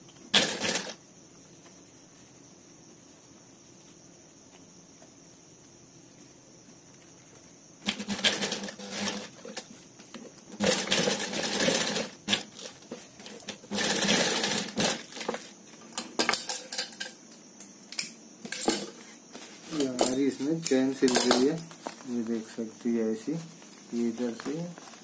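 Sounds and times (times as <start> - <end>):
sewing machine stitching: 0.3 - 1.0, 7.8 - 9.6, 10.6 - 15.3.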